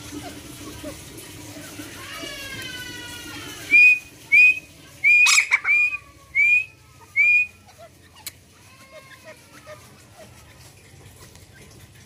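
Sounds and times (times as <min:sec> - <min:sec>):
bird whistled calling notes: 0:03.7 - 0:07.6.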